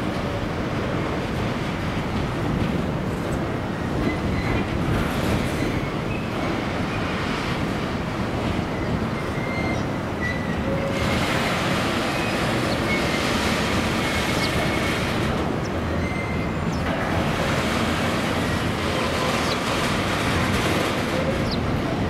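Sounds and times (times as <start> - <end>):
freight train wheels rumbling on track: 0.0 - 22.0
high wheel squeaks: 3.8 - 7.1, 8.6 - 16.9.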